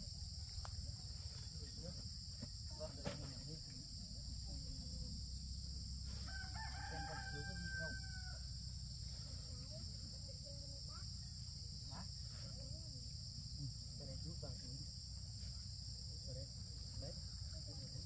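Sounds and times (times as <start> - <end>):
high insect drone: 0.0 - 18.0
rooster crowing: 6.2 - 8.6.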